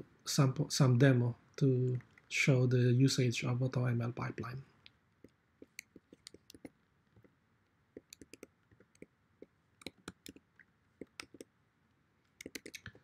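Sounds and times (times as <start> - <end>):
computer keyboard keystrokes: 12.4 - 13.0.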